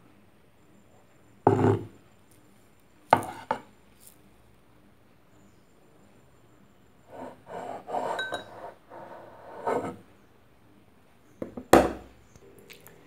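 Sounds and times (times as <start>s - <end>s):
knife scraping on wooden board: 3.2s - 3.6s, 7.1s - 10.0s.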